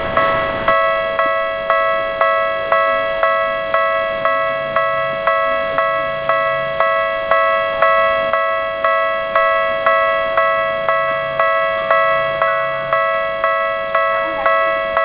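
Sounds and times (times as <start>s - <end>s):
electronic railway warning bell: 0.0s - 15.0s.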